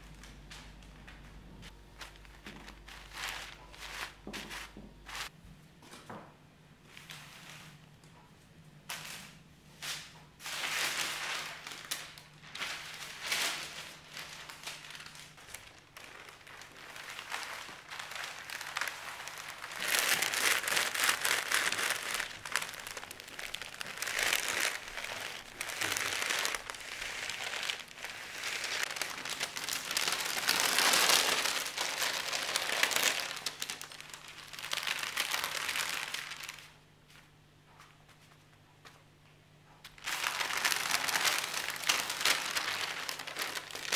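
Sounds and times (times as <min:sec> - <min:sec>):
baking paper crinkling: 0:00.0 - 0:05.3, 0:10.0 - 0:37.2, 0:39.9 - 0:43.9.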